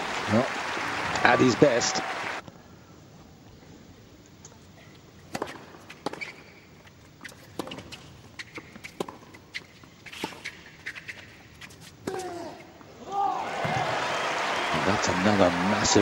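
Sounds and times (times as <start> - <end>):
tennis ball bounces: 5.3 - 6.4, 7.2 - 10.6
tennis balls struck by racquets: 5.3 - 6.4, 7.5 - 10.6.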